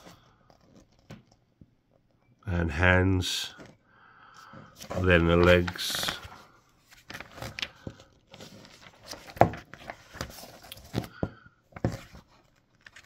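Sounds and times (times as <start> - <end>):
paper pages rustling: 0.0 - 1.4, 4.6 - 13.0.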